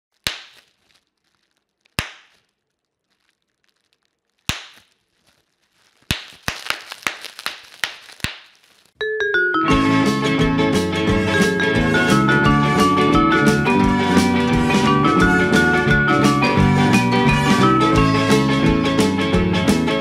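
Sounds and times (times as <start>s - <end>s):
bubble wrap popping: 0.1s - 9.0s.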